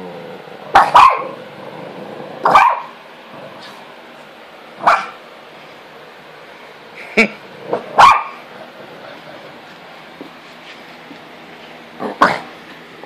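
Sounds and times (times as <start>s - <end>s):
small dog barking: 0.7s - 1.4s, 2.4s - 2.9s, 4.8s - 5.2s, 8.0s - 8.4s.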